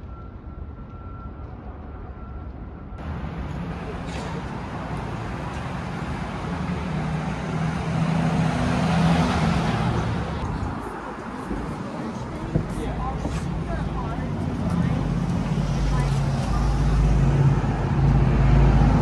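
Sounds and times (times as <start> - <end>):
vehicle engine passing by: 3.0 - 10.9, 12.8 - 19.0.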